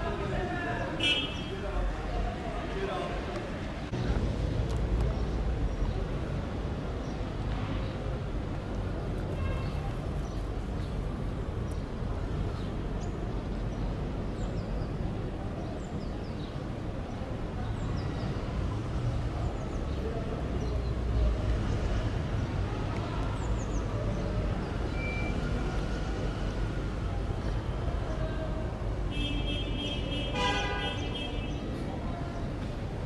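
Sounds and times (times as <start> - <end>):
low rumble of traffic: 0.0 - 33.0
small birds chirping: 4.4 - 21.5.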